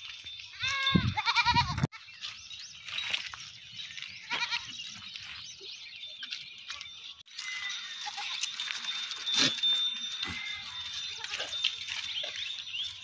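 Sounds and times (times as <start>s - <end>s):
goats bleating: 0.6s - 1.9s, 4.3s - 4.7s, 9.2s - 11.6s.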